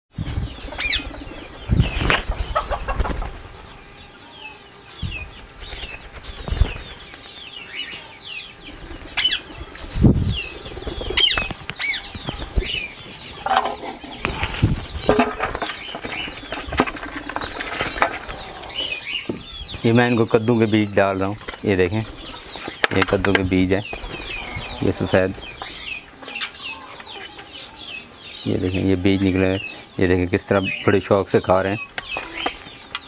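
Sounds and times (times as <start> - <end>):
parakeets chirping and squawking: 0.3 - 33.0
parakeets flapping wings: 5.6 - 7.3.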